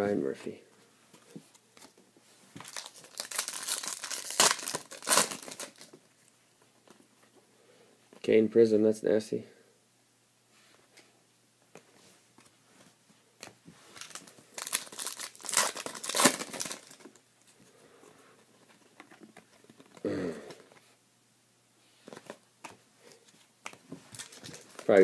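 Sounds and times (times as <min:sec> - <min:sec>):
wrappers tearing and crinkling: 0:02.6 - 0:06.0, 0:13.9 - 0:17.2, 0:24.1 - 0:25.0.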